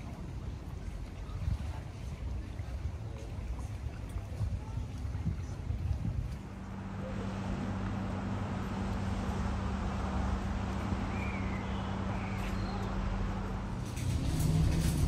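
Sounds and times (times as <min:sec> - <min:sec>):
low mechanical hum: 0:00.0 - 0:15.0
low rumble: 0:04.9 - 0:15.0.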